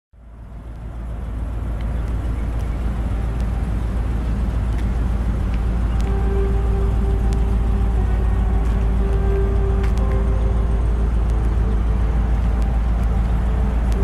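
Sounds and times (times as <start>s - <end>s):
car engine idling: 0.2s - 14.0s
steady higher tone: 1.1s - 14.0s.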